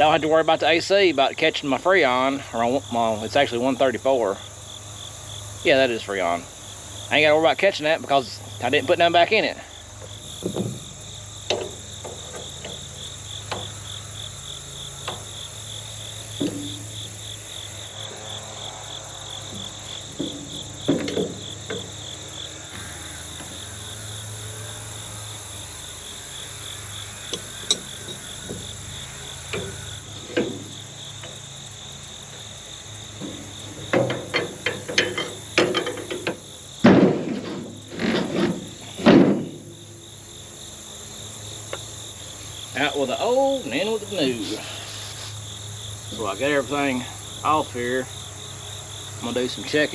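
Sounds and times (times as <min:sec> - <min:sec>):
insects chirping: 0:00.0 - 0:49.9
metal knocks and clatter: 0:10.4 - 0:10.9, 0:16.4 - 0:16.8, 0:19.5 - 0:22.0, 0:29.5 - 0:31.4, 0:33.1 - 0:39.8.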